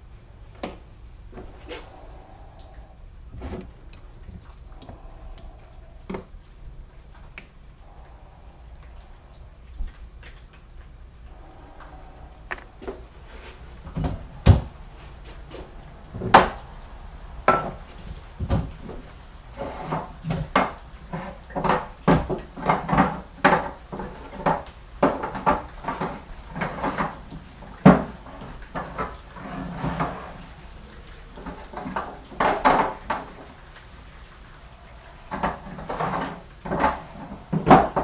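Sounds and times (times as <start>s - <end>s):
objects knocking and clattering: 11.4s - 30.4s, 31.4s - 33.6s, 35.2s - 38.0s.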